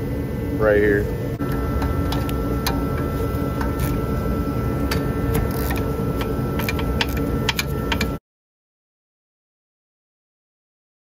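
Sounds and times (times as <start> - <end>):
steady low hum: 0.0 - 8.2
hand ratchet clicking: 4.9 - 8.2.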